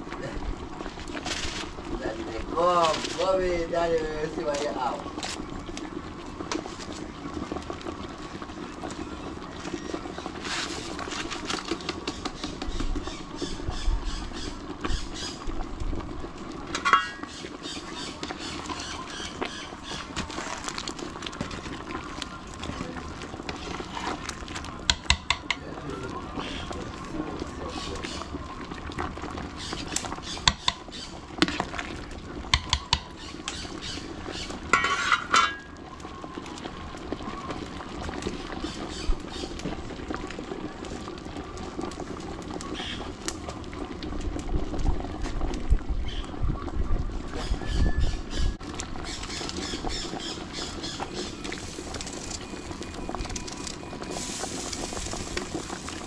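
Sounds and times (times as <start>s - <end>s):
soup bubbling in a pot: 0.0s - 56.0s.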